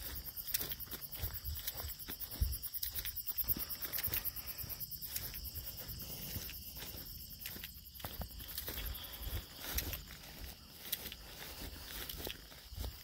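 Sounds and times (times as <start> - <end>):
footsteps through grass: 0.0 - 13.0
insects chirping: 0.0 - 13.0.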